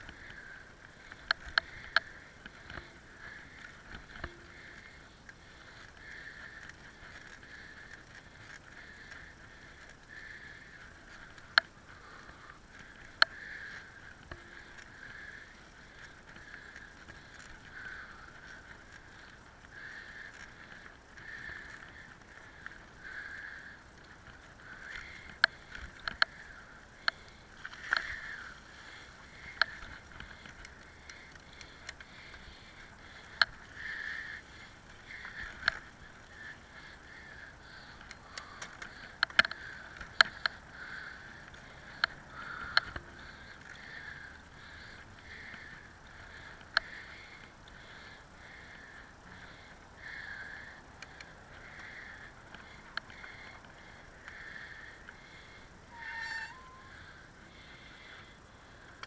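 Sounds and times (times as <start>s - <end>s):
bicycle tyres rumbling: 0.0s - 59.0s.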